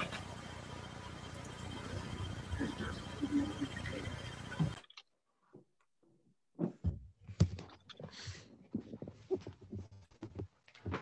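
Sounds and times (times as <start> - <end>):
faint high whine: 0.0 - 4.9.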